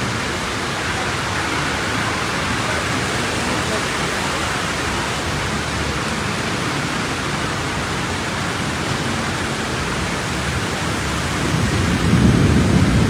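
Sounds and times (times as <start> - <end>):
heavy rain hissing: 0.0 - 13.0
low thunder rumble: 11.0 - 13.0.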